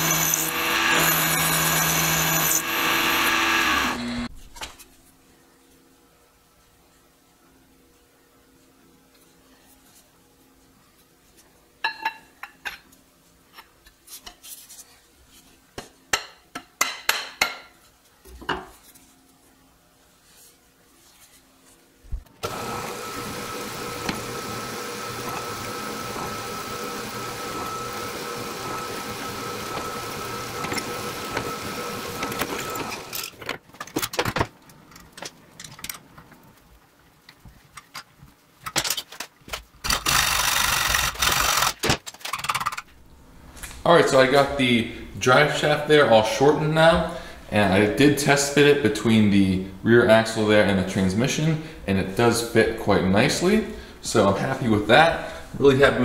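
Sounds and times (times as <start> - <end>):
milling machine whining: 0.0 - 4.3, 22.4 - 33.3.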